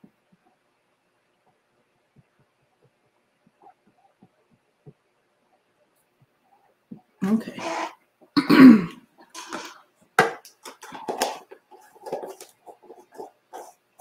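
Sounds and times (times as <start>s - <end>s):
person coughing: 7.5s - 9.7s.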